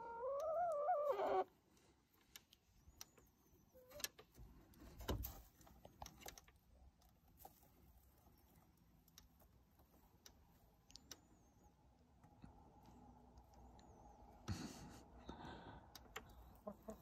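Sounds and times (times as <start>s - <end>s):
hen calling: 0.0s - 1.5s.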